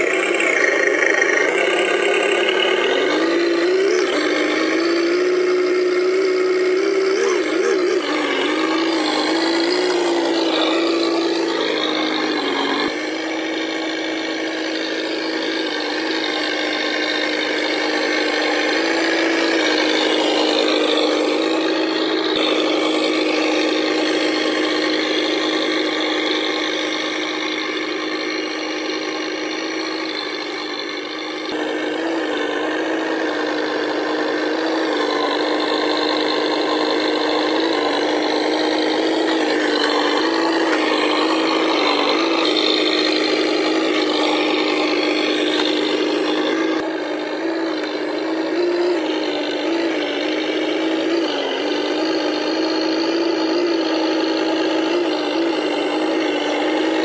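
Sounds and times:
rasping mechanical noise: 0:00.0 - 0:57.0.

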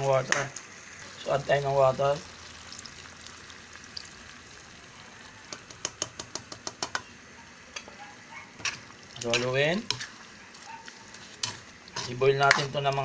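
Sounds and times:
sharp crackling pops: 0:00.0 - 0:00.7
food sizzling in pan: 0:00.0 - 0:13.0
water pouring: 0:01.0 - 0:05.4.

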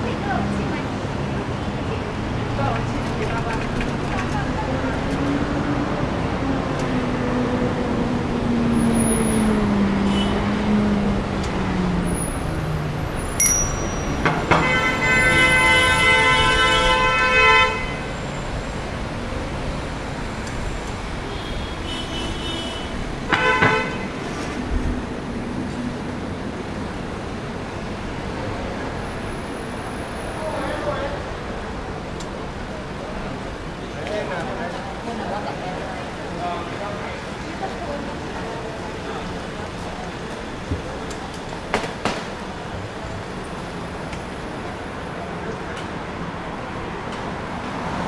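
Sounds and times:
road traffic: 0:00.0 - 0:48.0
vehicle horn honking: 0:13.8 - 0:18.2, 0:21.4 - 0:24.1.

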